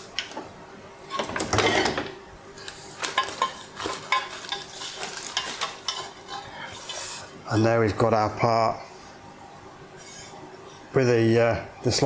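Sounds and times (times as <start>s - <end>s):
plastic sheet crinkling: 2.7s - 5.9s.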